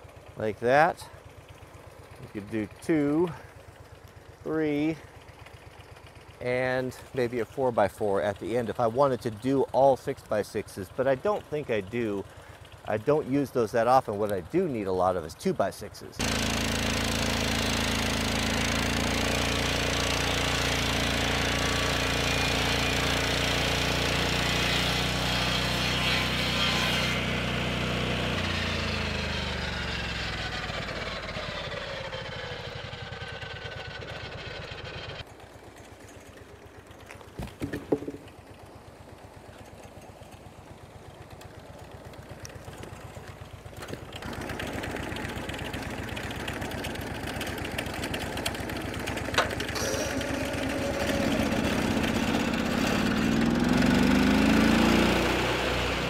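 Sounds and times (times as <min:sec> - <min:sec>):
saw blade cutting log: 0:16.2 - 0:29.2, 0:49.3 - 0:56.0
sawmill engine running under load: 0:16.2 - 0:37.2, 0:38.0 - 0:56.0.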